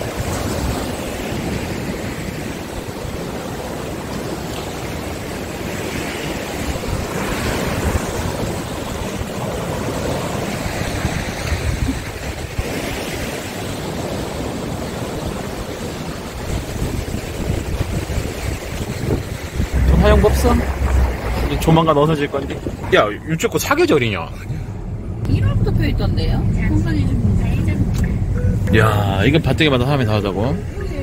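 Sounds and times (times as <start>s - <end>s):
waves breaking on rocks: 0.0s - 24.3s
wind buffeting microphone: 0.0s - 28.8s.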